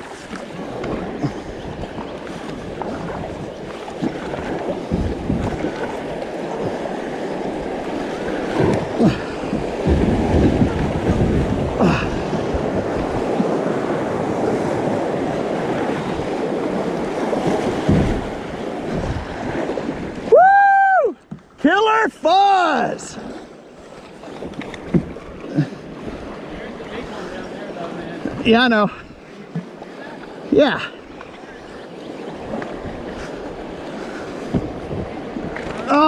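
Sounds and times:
wind on microphone: 0.0 - 21.3, 31.4 - 36.0
paddle strokes splashing: 0.0 - 36.0
water rushing over rapids: 0.0 - 36.0.

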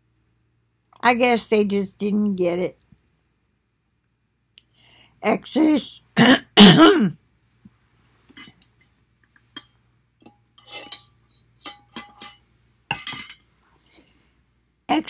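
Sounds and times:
woman's voice: 1.0 - 2.8, 5.2 - 7.1.

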